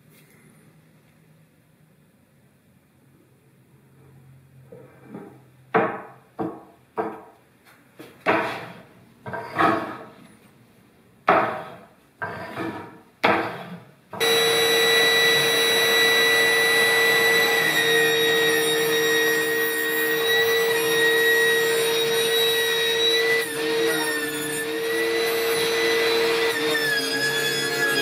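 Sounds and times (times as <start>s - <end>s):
table saw whine: 14.2s - 28.0s.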